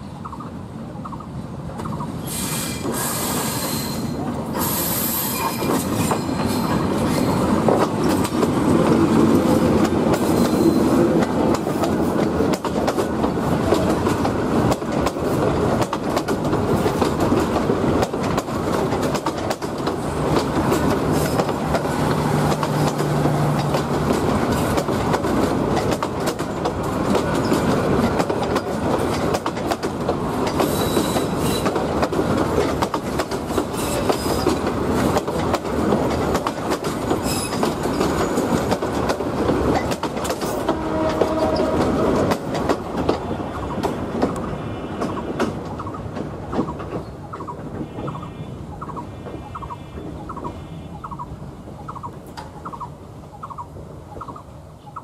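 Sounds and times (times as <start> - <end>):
train rumbling: 0.0 - 55.0
train wheels clattering: 1.8 - 50.6
wheel squeals: 10.2 - 11.0, 30.6 - 31.8, 33.8 - 34.6, 37.1 - 38.4.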